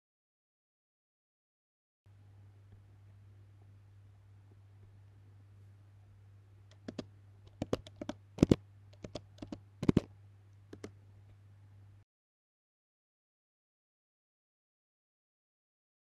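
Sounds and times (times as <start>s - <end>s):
faint low hum: 2.1s - 12.1s
keyboard key clicks: 6.7s - 10.1s, 10.7s - 11.0s.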